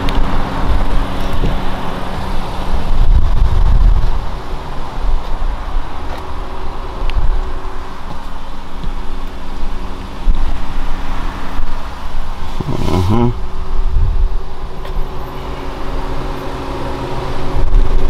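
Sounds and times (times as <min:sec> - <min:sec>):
wind on microphone: 0:00.0 - 0:06.1, 0:10.2 - 0:14.8, 0:17.2 - 0:18.0
outdoor traffic hum: 0:00.0 - 0:18.0.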